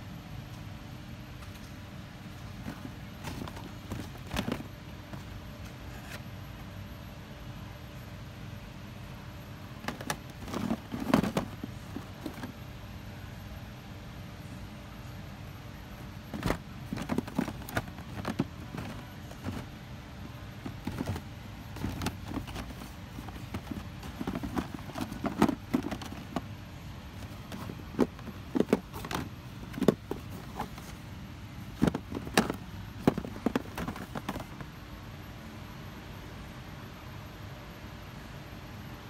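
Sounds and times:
steady low hum: 0:00.0 - 0:39.0
plastic packs clacking: 0:02.6 - 0:05.3, 0:09.8 - 0:12.5, 0:16.3 - 0:19.7, 0:20.4 - 0:31.0, 0:31.7 - 0:34.6.

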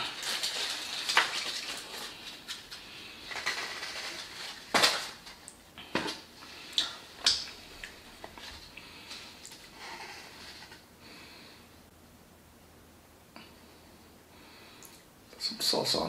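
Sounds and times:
food wrapper crinkling: 0:00.0 - 0:05.5.

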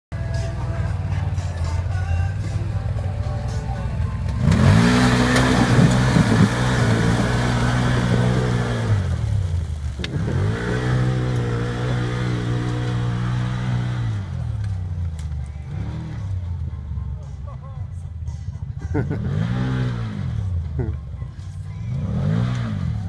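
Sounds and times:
engine revving hard: 0:04.4 - 0:09.2, 0:10.0 - 0:14.5, 0:19.1 - 0:20.5, 0:22.0 - 0:23.0
tyres throwing mud and water: 0:04.4 - 0:15.4.

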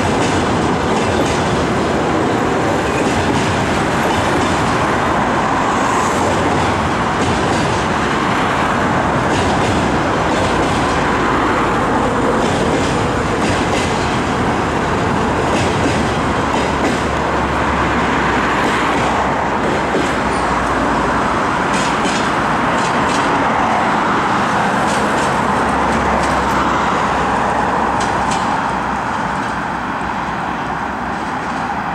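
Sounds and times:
wheels clicking over rail joints: 0:00.0 - 0:05.1, 0:06.3 - 0:17.5, 0:21.6 - 0:23.8, 0:24.5 - 0:26.6, 0:27.9 - 0:29.6
train rumbling across steel bridge: 0:00.0 - 0:31.9.

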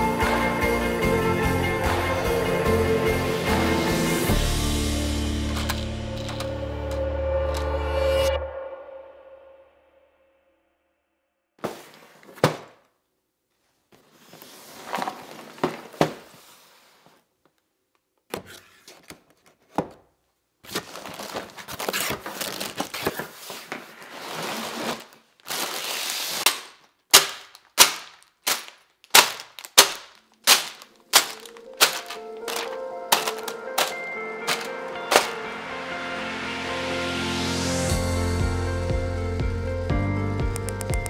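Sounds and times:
music: 0:00.0 - 0:09.2, 0:31.0 - 0:41.0
bags knocking on table: 0:11.6 - 0:12.8, 0:27.1 - 0:35.4
cardboard box being opened: 0:20.7 - 0:26.4, 0:31.1 - 0:35.4
plastic bags crinkling: 0:20.7 - 0:35.4.

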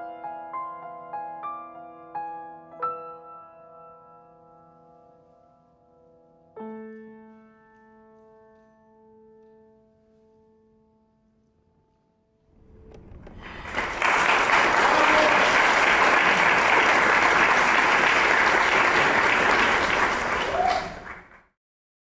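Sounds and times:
audience applauding: 0:12.9 - 0:21.5.

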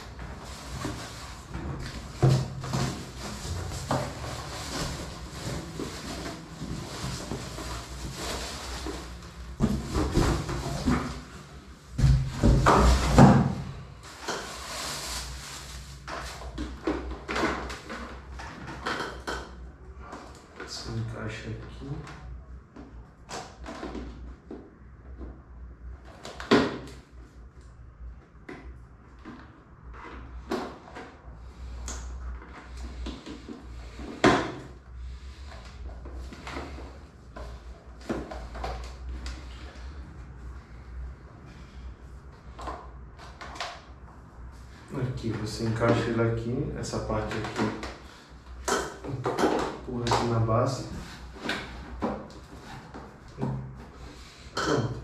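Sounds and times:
cardboard scraping and rustling: 0:00.0 - 0:11.4.

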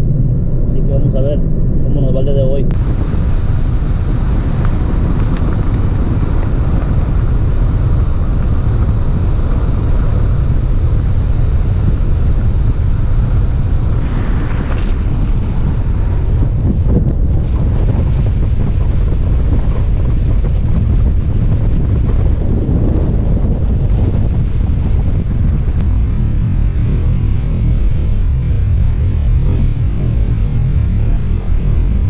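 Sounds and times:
car road noise: 0:00.0 - 0:32.0
wind buffeting microphone: 0:00.0 - 0:32.0.

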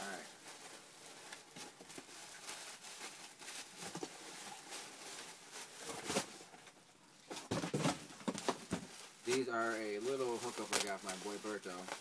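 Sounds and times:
packaging rustling and crinkling: 0:00.0 - 0:12.0.

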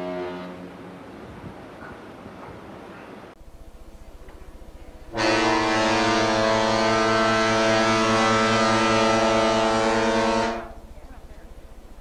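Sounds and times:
ship's horn long blast: 0:00.0 - 0:01.0, 0:04.9 - 0:11.8.

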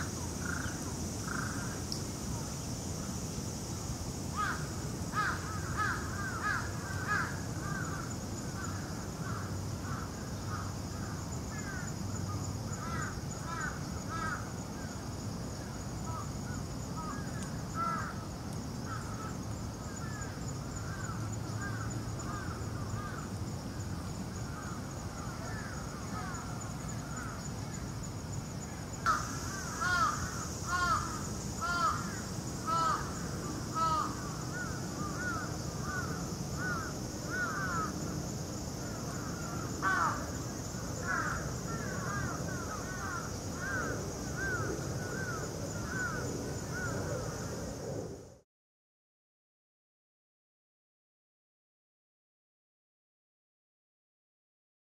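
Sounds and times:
crows cawing: 0:04.4 - 0:11.9, 0:12.8 - 0:14.5, 0:17.0 - 0:18.2, 0:29.1 - 0:38.0, 0:39.0 - 0:40.3, 0:41.0 - 0:46.9.

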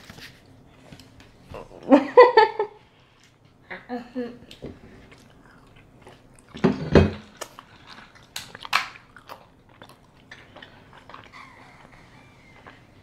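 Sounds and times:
person chewing: 0:04.5 - 0:13.0.

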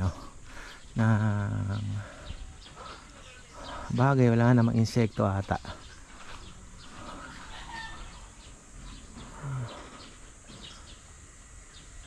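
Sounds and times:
chickens clucking softly: 0:06.8 - 0:10.2.

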